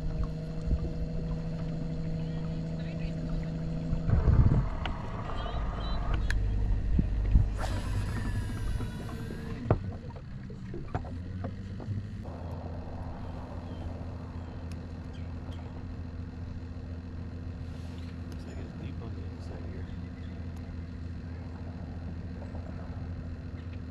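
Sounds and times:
low motor hum: 0.0 - 23.9
light knocks in boat: 7.2 - 12.0.

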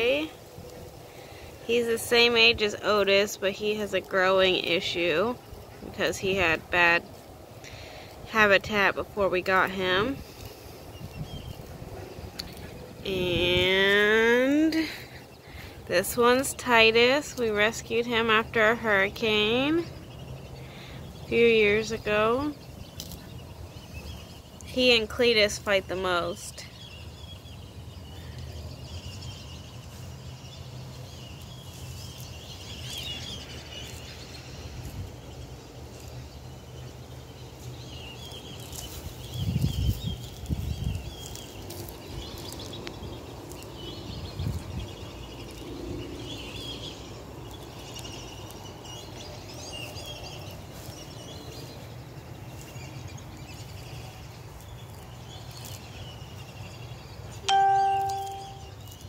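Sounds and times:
steady low rumble: 0.0 - 55.0
faint bird chirps: 57.3 - 59.0.

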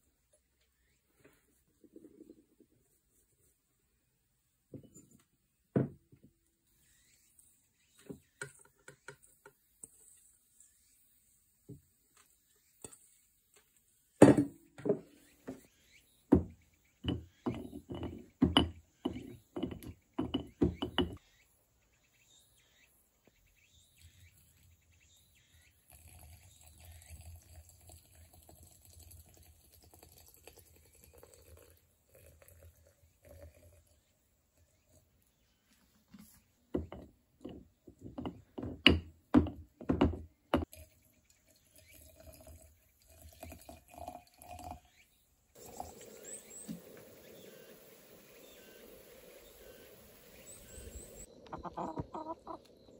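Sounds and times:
liquid trickling into jar: 25.8 - 35.0, 40.7 - 45.0, 45.6 - 51.3.

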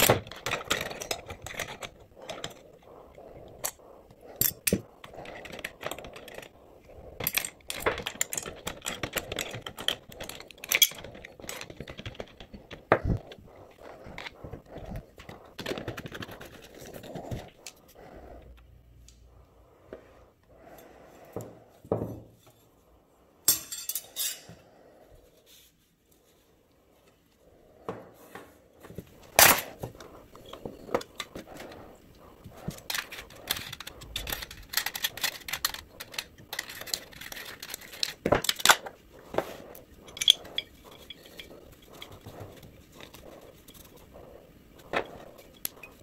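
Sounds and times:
metal parts clinking: 7.2 - 12.8, 32.7 - 38.9, 40.0 - 42.2.

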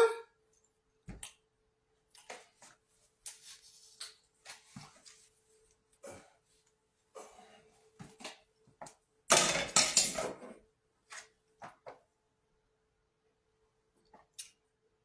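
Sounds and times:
kitchen knocks and clinks: 9.3 - 10.5
kitchen items clattering: 9.3 - 10.6.

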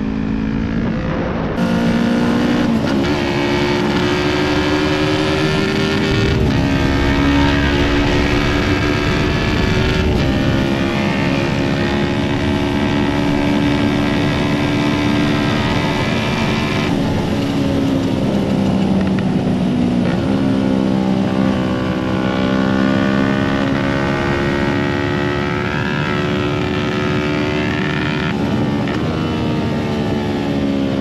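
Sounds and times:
motorcycle engine running: 0.0 - 30.6
rushing wind: 0.0 - 31.0.

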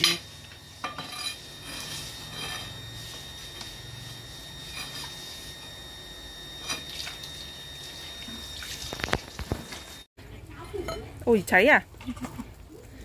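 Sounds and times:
liquid pouring and trickling: 6.8 - 10.0.

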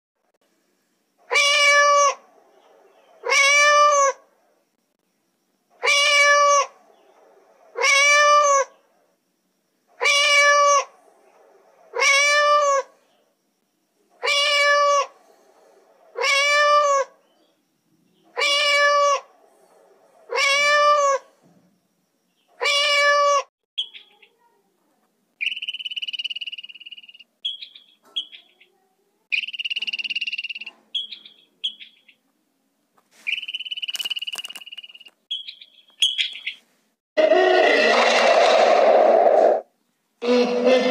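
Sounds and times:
cat meowing: 1.3 - 2.2, 3.2 - 4.2, 5.8 - 6.7, 7.8 - 8.7, 10.0 - 10.9, 11.9 - 12.9, 14.2 - 15.1, 16.2 - 17.1, 18.4 - 19.3, 20.3 - 21.2, 22.6 - 23.5
squirrel chirping: 22.3 - 24.5, 25.4 - 32.3, 33.2 - 36.7.

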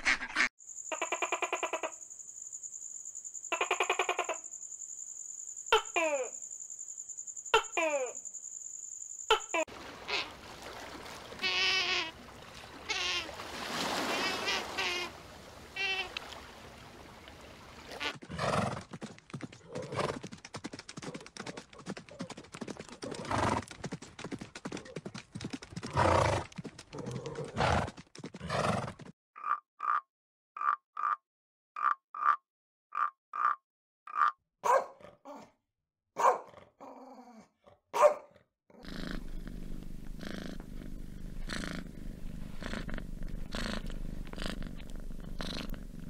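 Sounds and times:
frog croaking: 0.8 - 2.0, 3.5 - 4.5, 11.3 - 12.2, 12.8 - 13.4, 14.2 - 15.1, 15.7 - 16.2, 29.4 - 31.2, 31.8 - 34.4, 38.8 - 46.0
horses neighing and snorting: 9.7 - 16.4, 17.8 - 20.5, 21.2 - 23.8, 25.7 - 29.6, 38.8 - 46.0.

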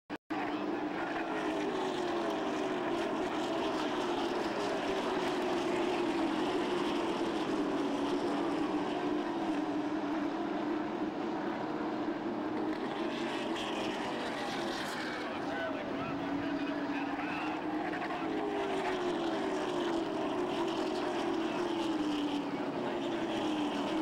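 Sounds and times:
race car engines droning: 0.3 - 24.0.

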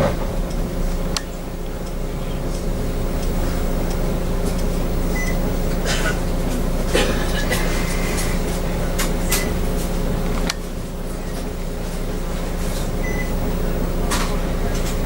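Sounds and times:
bus engine idling: 0.0 - 15.0.

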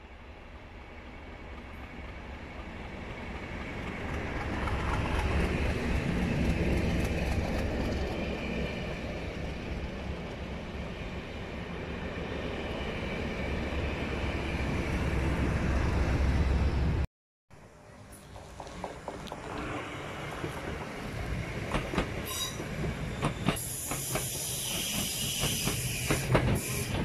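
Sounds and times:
train wheels on rails: 1.4 - 11.2, 18.0 - 27.0
diesel locomotive engine rumble: 17.6 - 27.0.

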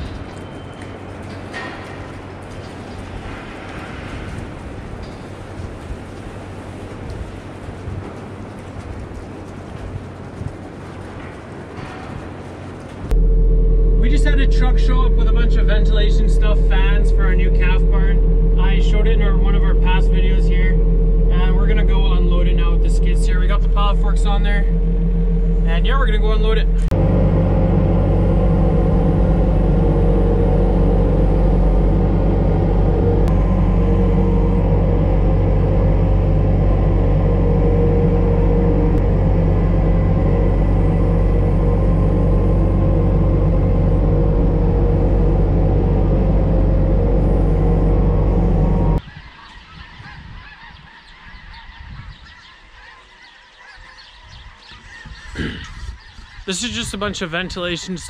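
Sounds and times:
loader engine running loudly: 13.0 - 49.0
geese honking: 13.6 - 58.0.

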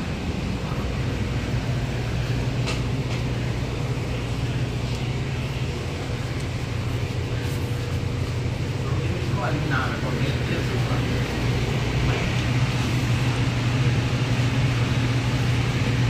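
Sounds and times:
ventilation hum: 0.0 - 16.0.

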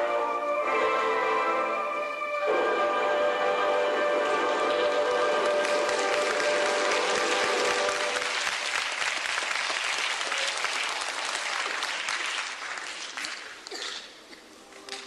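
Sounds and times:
music: 0.0 - 8.4
audience applauding: 4.0 - 13.7.

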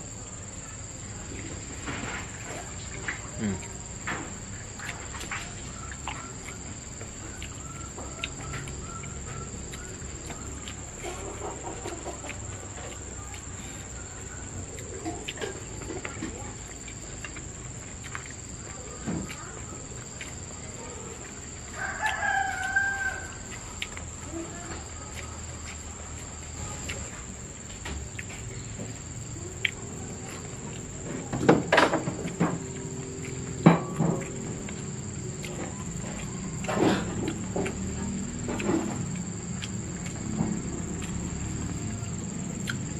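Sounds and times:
high-pitched insect drone: 16.7 - 42.9
rooster crowing: 21.6 - 23.6.

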